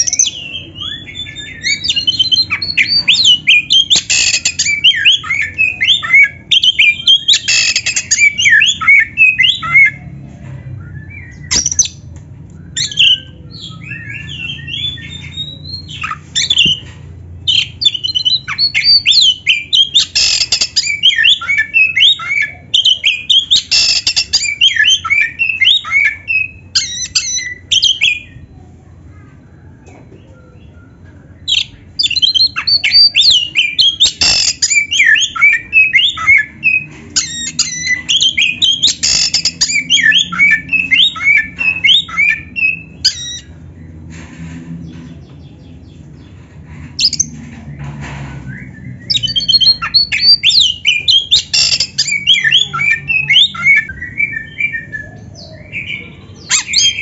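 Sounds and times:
songbird singing: 29.6 - 44.0, 48.5 - 57.0.

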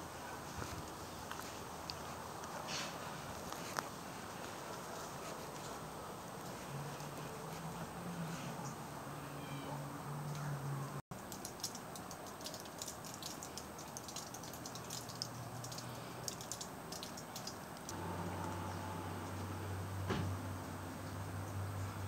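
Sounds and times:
ice and drops falling from trees: 11.2 - 17.9.

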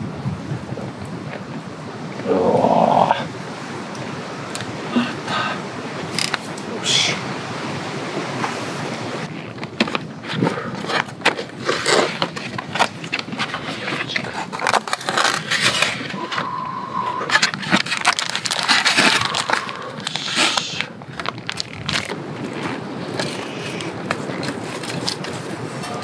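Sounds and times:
brief steady tone: 16.1 - 17.4
cardboard box being opened: 17.3 - 20.6
plastic packaging crinkling: 17.4 - 20.2, 21.1 - 22.2.

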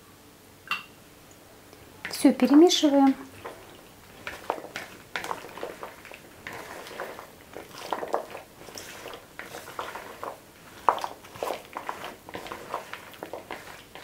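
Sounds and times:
pasta salad squishing: 1.8 - 14.0
spatula scraping plastic bowl: 2.0 - 14.0.

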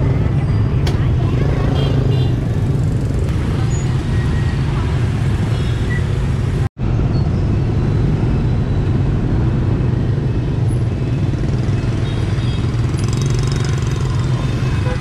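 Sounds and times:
motorbike and scooter traffic: 0.0 - 15.0.

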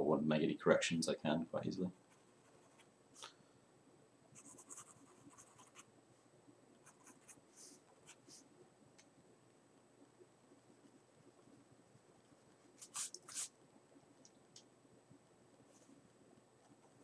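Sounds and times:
pencil scratching on paper: 4.4 - 5.8.

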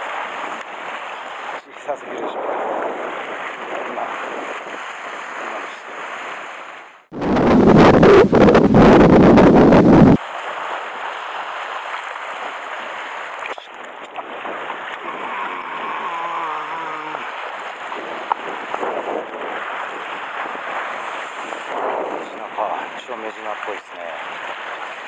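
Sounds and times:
wind buffeting microphone: 0.0 - 10.2, 14.0 - 23.1
sea breaking against rocks: 0.0 - 25.0.

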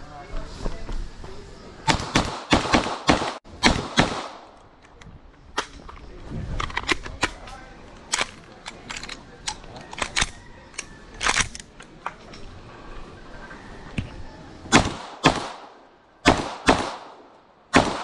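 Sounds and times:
gunshots with echo: 1.9 - 4.5, 14.7 - 18.0.

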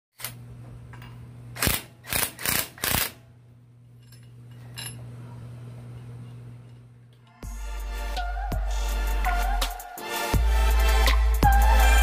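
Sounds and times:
impact wrench bursts: 1.6 - 3.2.

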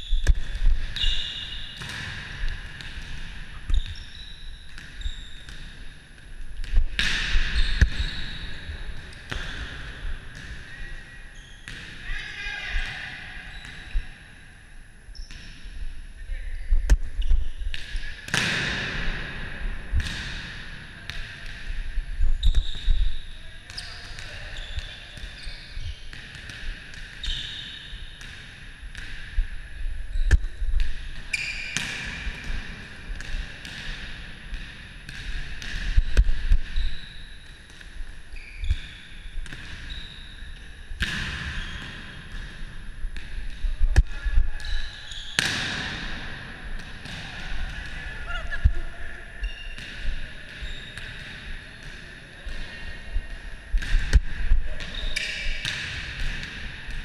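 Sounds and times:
sneakers squeaking on court: 0.0 - 6.0, 6.6 - 9.6, 22.2 - 28.4, 30.1 - 32.4, 35.1 - 43.4, 44.6 - 46.0, 49.4 - 51.8
ball bouncing on court floor: 0.1 - 10.8, 11.4 - 12.0, 16.9 - 19.2, 19.9 - 27.6, 30.1 - 48.8, 49.4 - 52.8, 53.7 - 57.0.

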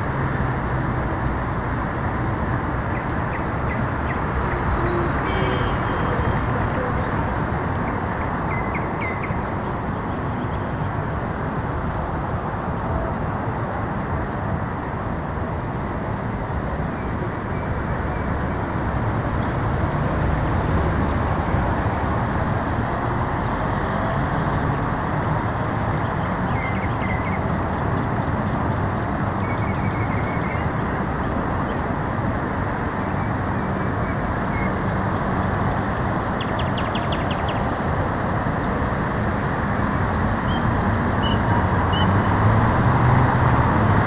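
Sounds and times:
city traffic noise: 0.0 - 44.0
nightingale song: 2.9 - 9.8, 31.6 - 37.8, 39.9 - 42.2.

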